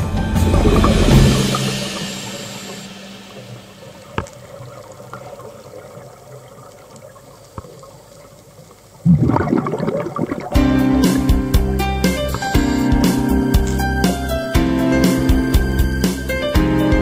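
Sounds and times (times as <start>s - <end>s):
sudden loud burst: 0.0s - 5.0s
background music: 0.0s - 5.1s, 10.4s - 17.0s
faint underwater hiss: 0.0s - 16.4s.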